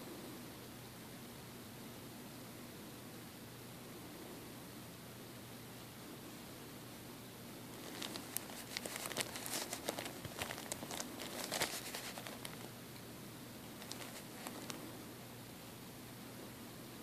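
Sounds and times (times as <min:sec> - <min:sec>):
plastic bottle crinkling: 0:07.8 - 0:12.7, 0:13.7 - 0:14.8.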